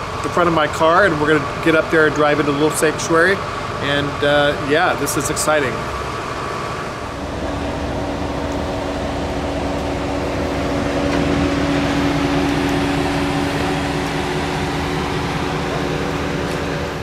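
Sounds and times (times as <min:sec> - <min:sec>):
car engine running: 0:05.7 - 0:17.0.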